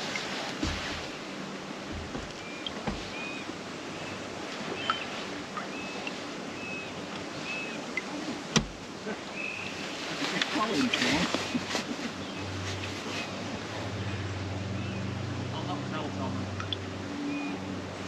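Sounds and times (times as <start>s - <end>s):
low bumps: 1.8s - 3.2s.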